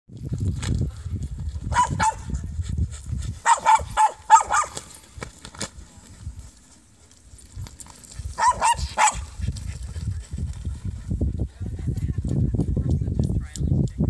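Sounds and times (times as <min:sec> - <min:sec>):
dog barking in sharp yips: 0:01.7 - 0:02.4, 0:03.4 - 0:04.9, 0:08.4 - 0:09.3.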